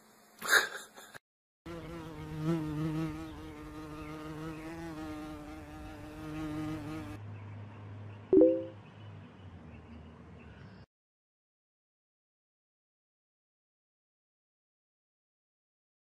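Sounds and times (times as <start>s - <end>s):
flying insect buzzing: 1.7s - 7.2s.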